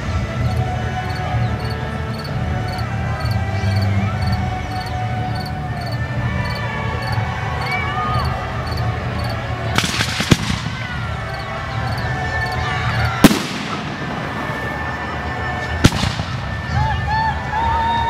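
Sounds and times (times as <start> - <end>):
firework shells bursting: 9.8 - 10.9, 13.2 - 16.8.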